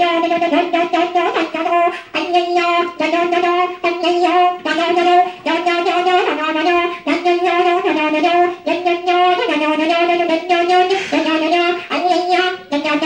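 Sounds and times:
wind instrument melody: 0.0s - 13.0s.

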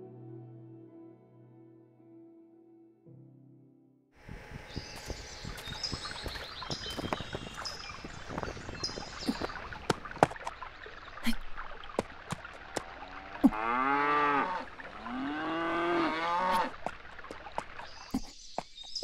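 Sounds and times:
breezy hiss: 4.2s - 10.4s
songbirds chirping: 4.2s - 19.0s.

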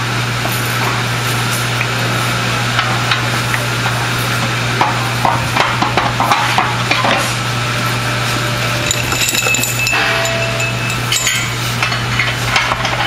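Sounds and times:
steady hum and hiss: 0.0s - 13.0s
metal parts clinking together: 8.8s - 12.0s.

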